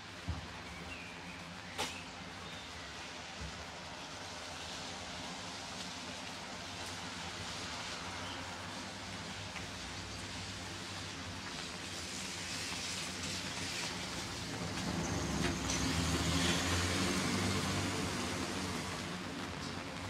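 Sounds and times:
rain hissing: 0:00.1 - 0:20.0
car driving past on wet street: 0:04.2 - 0:20.0.

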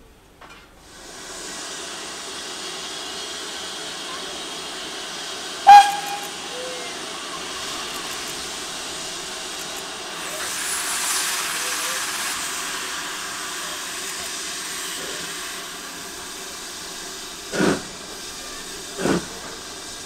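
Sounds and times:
steam locomotive hissing steam: 0:00.7 - 0:20.0
steam whistle toot: 0:05.6 - 0:07.0.

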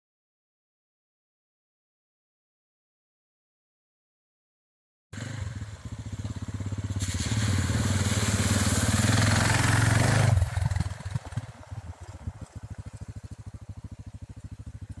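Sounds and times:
dirt bike engine passing: 0:05.2 - 0:15.0.

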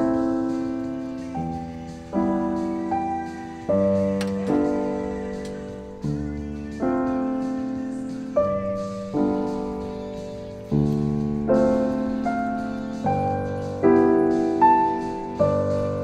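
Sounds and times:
slow piano chords: 0:00.0 - 0:16.0.

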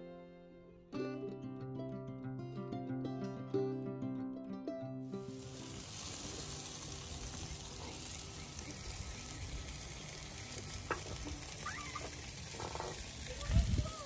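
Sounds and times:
meat sizzling on a grill: 0:05.2 - 0:14.0.

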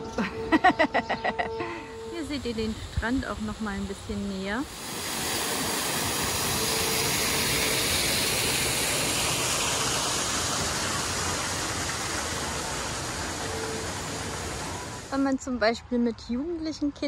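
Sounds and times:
waterfall pouring into pool: 0:04.6 - 0:15.1.

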